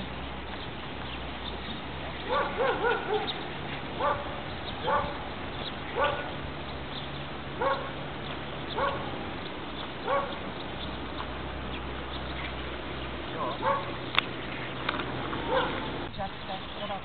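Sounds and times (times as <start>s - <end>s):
dog barking: 2.3s - 3.4s, 4.0s - 5.2s, 6.0s - 6.4s, 7.6s - 8.0s, 8.8s - 9.1s, 10.0s - 10.4s, 13.4s - 14.0s, 15.5s - 15.8s.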